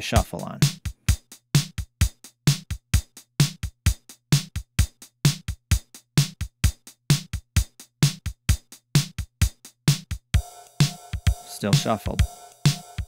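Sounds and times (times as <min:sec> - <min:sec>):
drum machine beat: 0:00.0 - 0:13.0.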